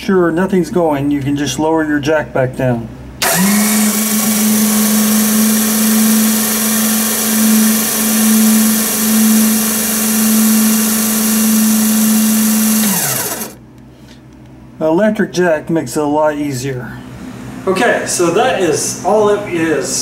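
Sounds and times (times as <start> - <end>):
electric jack motor whining: 3.2 - 13.6.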